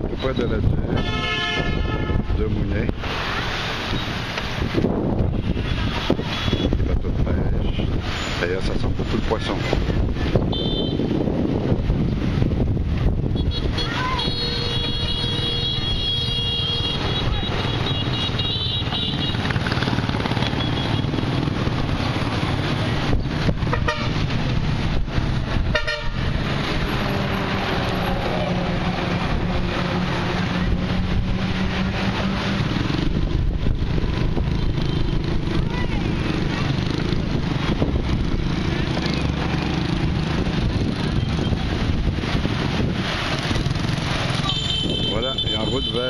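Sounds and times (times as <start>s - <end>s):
wind rumbling on microphone: 0.0s - 18.4s, 19.2s - 46.0s
road traffic: 0.0s - 46.0s
vehicle horn: 0.9s - 2.3s, 10.5s - 11.1s, 13.4s - 19.4s, 23.7s - 24.2s, 25.7s - 26.4s, 44.4s - 46.0s
engine hum passing: 15.1s - 44.7s.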